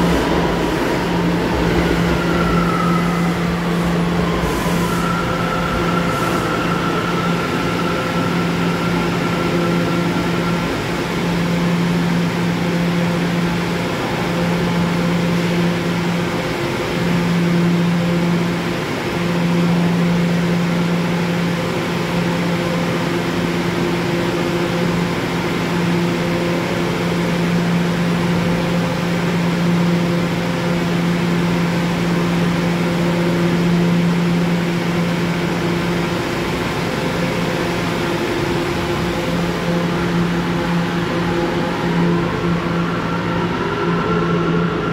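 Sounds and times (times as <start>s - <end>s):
station noise: 0.0s - 17.4s
electrical hum of train: 0.0s - 44.9s.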